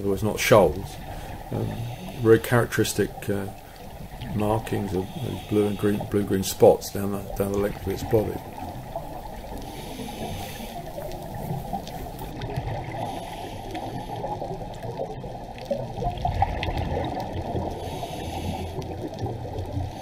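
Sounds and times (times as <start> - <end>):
underwater rush and gurgle of water: 0.0 - 20.0
faint clicks: 8.5 - 12.4.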